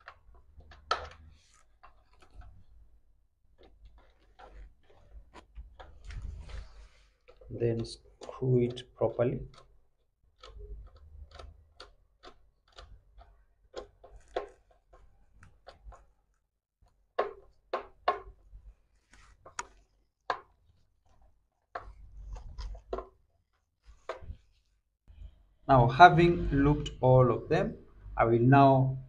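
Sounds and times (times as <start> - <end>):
screwdriver clicking on screw: 10.4 - 14.7.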